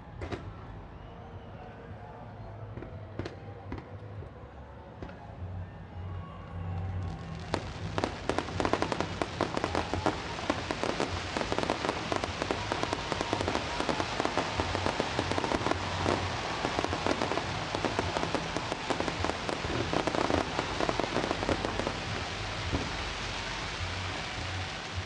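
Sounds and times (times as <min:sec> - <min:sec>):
fireworks crackling and popping: 0:00.2 - 0:00.6, 0:07.0 - 0:25.0.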